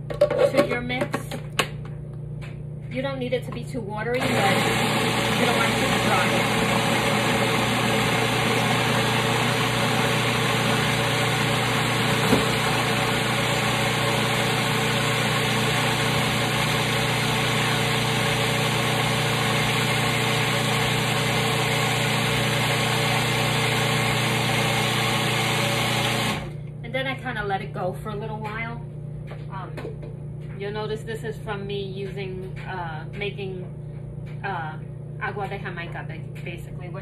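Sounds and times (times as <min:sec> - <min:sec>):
food processor motor humming: 0:04.1 - 0:26.8.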